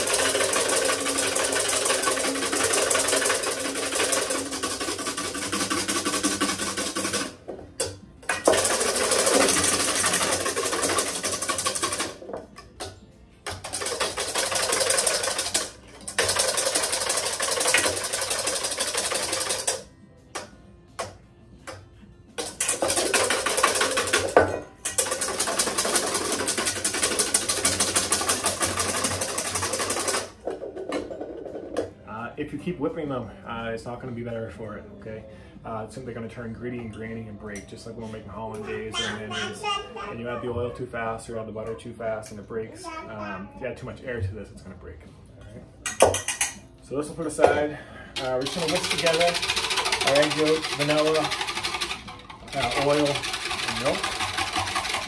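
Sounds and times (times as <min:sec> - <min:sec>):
whisk clattering in metal bowl: 0:00.0 - 0:12.2, 0:13.5 - 0:19.8, 0:22.4 - 0:31.6, 0:45.8 - 0:46.6, 0:48.2 - 0:55.0.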